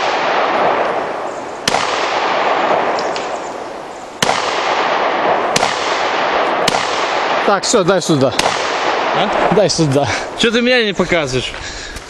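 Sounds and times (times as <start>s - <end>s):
pistol gunshots with echo: 0.0s - 3.5s, 4.2s - 9.5s.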